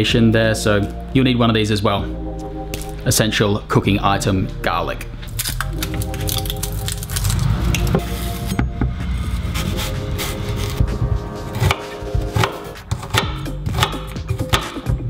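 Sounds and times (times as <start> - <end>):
knife chopping on wooden board: 11.5 - 14.9.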